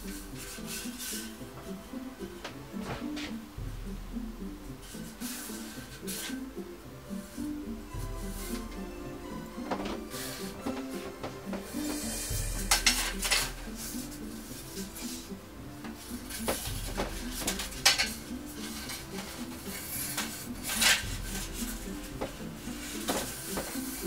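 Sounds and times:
background music: 0.0 - 24.0
metal blind slats clattering: 16.4 - 21.5.

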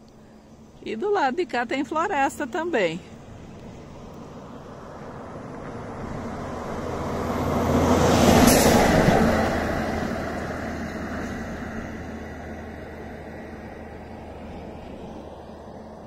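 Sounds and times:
vehicle passing by: 2.4 - 16.0.

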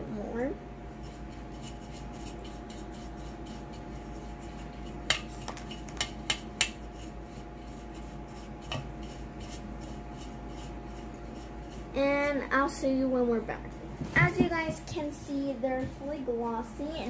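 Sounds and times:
electrical hum: 0.0 - 17.0
pastry brush rubbing metal pan: 0.9 - 12.7
brush clicking against pan: 4.8 - 6.9.

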